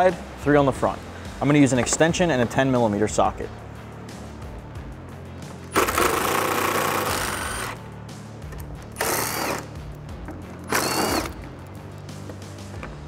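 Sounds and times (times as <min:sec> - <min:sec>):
impact driver backing out bolts: 0:09.0 - 0:09.6, 0:10.6 - 0:11.4.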